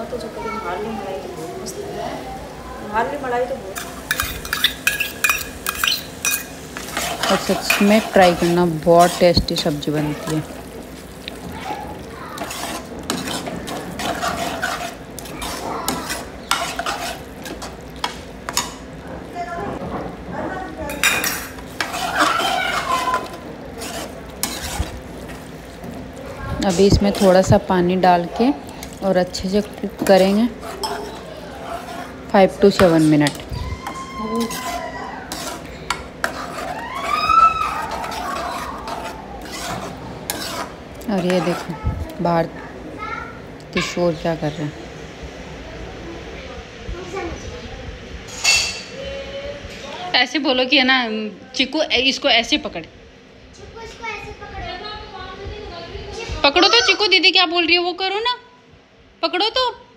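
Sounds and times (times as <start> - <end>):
ladle scraping a pot: 3.8 - 11.4, 12.4 - 18.8, 20.9 - 25.9, 26.5 - 41.8
ladle clinking on metal pot: 4.1 - 7.9.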